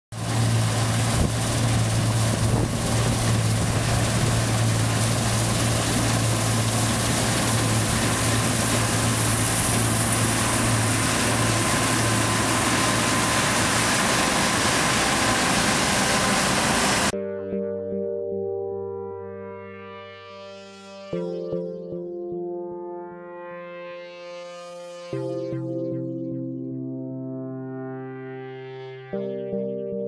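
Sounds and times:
combine harvester engine drone: 0.2s - 17.2s
machinery rushing noise: 0.2s - 17.2s.

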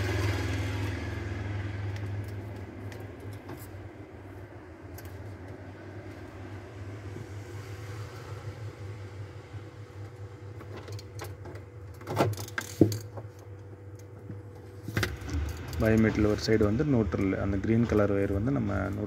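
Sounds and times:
steady low hum: 0.0s - 19.0s
hands handling wiring: 1.8s - 6.4s, 10.0s - 16.5s.

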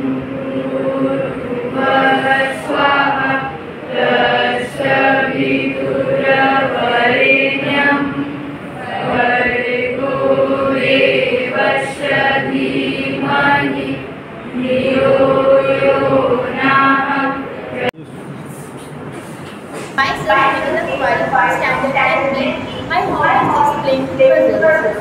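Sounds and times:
children chanting in unison: 0.0s - 17.9s.

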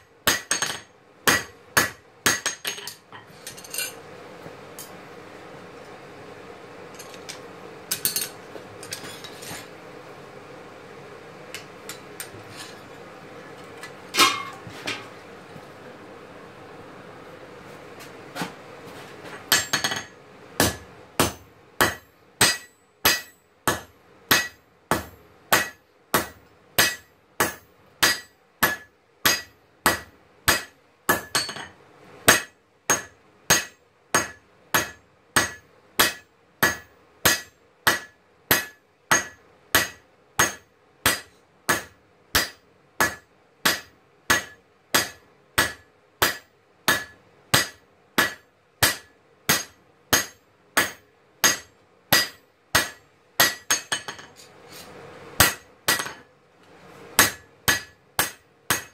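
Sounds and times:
hammer blows ringing on anvil: 19.5s - 31.7s, 32.3s - 54.3s, 55.4s - 56.2s, 57.2s - 58.9s.

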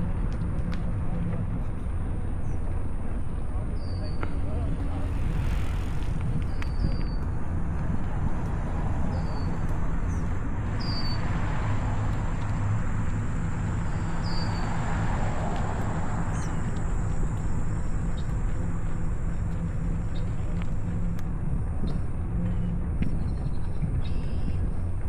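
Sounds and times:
rolling noise from riding: 0.0s - 25.0s
wind rumble: 0.0s - 25.0s
bird chirping: 14.0s - 14.8s.

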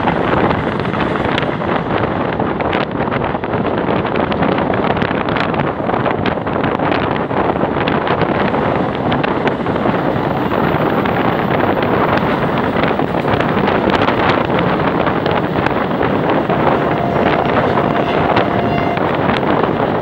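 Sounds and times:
train rumbling along track: 0.0s - 20.0s
wind buffeting microphone: 0.0s - 20.0s
train wheels clicking: 8.3s - 20.0s.

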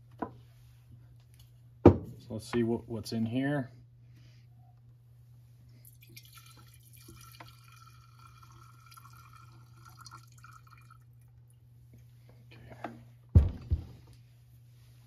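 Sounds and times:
liquid trickling into glass jar: 5.8s - 11.4s.

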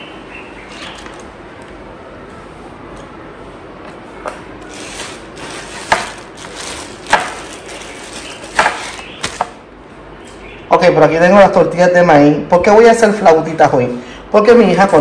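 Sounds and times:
plastic packaging crinkling: 4.6s - 9.6s.

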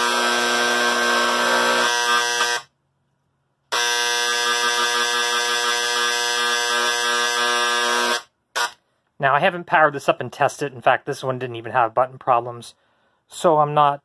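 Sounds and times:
electric engraver buzzing: 0.0s - 2.7s, 3.7s - 8.8s.

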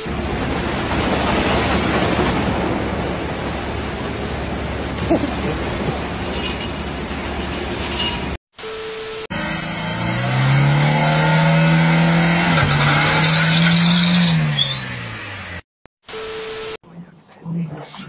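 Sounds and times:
car wash water spraying: 0.0s - 8.4s.

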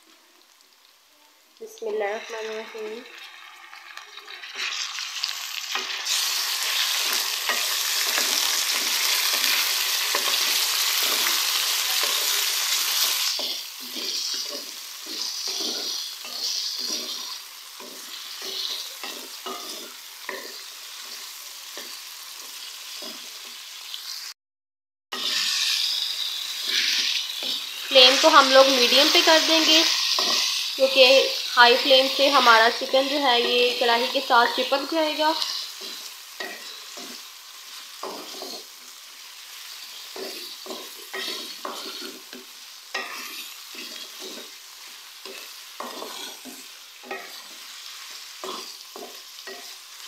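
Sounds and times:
chicken sizzling in hot oil: 0.0s - 24.4s, 25.1s - 50.0s
wooden spatula strokes in pan: 35.4s - 38.8s.

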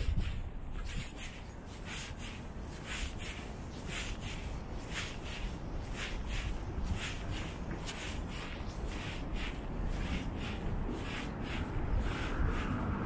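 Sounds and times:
footsteps on pavement: 0.0s - 13.0s
passing vehicle: 6.6s - 13.0s.

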